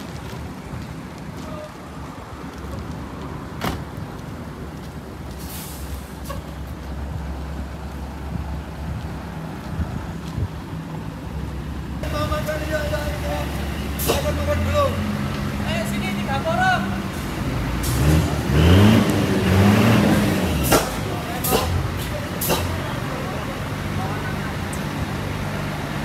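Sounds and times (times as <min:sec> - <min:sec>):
coach engines idling: 0:00.0 - 0:26.0
short hiss: 0:05.4 - 0:06.4.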